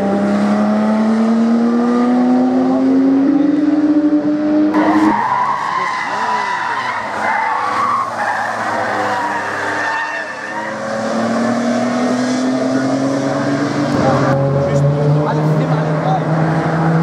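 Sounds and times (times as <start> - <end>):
car engines accelerating: 0.0 - 17.0
tyre squeal: 4.8 - 11.5.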